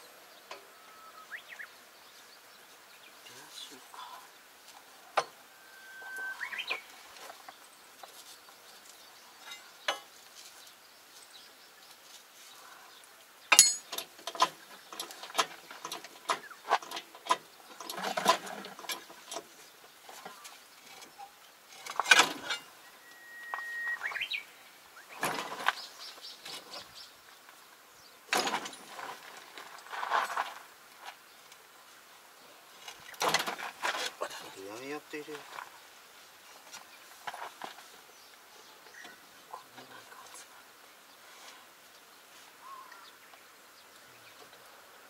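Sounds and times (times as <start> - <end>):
bird whistling: 5.5 - 6.9, 22.8 - 24.6
hand tools knocking on metal: 13.5 - 14.5.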